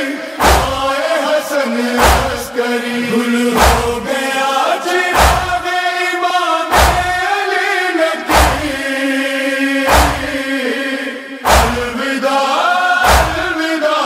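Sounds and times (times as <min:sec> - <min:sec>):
men chanting a lament: 0:00.0 - 0:14.0
loud unison thuds: 0:00.4 - 0:01.0, 0:02.0 - 0:02.6, 0:03.6 - 0:04.0, 0:05.2 - 0:05.7, 0:06.7 - 0:07.3, 0:08.3 - 0:08.9, 0:09.9 - 0:10.5, 0:11.4 - 0:12.0, 0:13.0 - 0:13.6.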